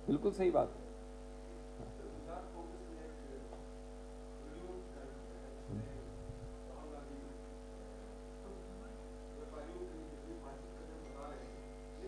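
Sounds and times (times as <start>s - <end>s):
electrical mains hum: 0.0s - 12.0s
faint distant speech: 4.4s - 12.0s
soft low bump: 5.6s - 6.6s.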